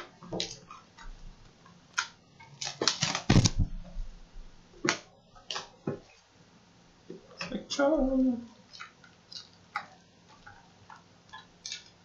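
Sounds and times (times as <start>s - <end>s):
cardboard and wrapper rustling: 2.6s - 3.8s.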